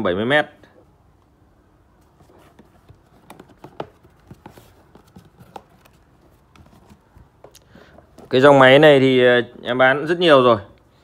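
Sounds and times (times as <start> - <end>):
cardboard box taps and knocks: 2.2 - 8.3.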